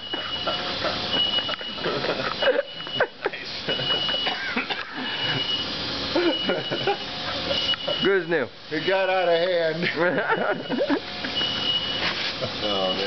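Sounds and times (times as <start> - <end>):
people laughing: 0.0 - 8.1, 9.7 - 12.9
smoke alarm beeping: 0.0 - 9.5, 10.2 - 13.0
people talking: 7.9 - 10.9, 12.4 - 13.0.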